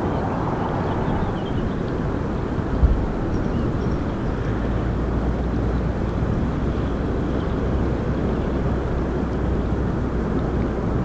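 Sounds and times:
geyser vent rushing: 0.0 - 5.2.

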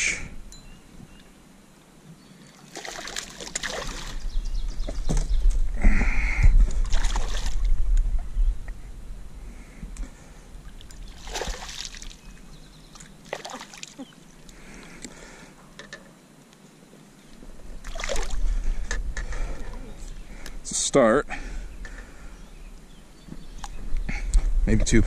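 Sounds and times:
fish splashing in water: 2.6 - 4.2, 6.8 - 7.7, 11.0 - 12.3, 13.0 - 14.1, 17.8 - 18.4.

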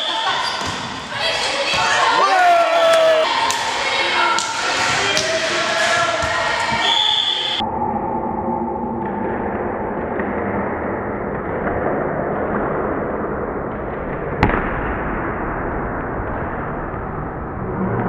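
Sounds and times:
spectators and players noise: 0.0 - 7.6.

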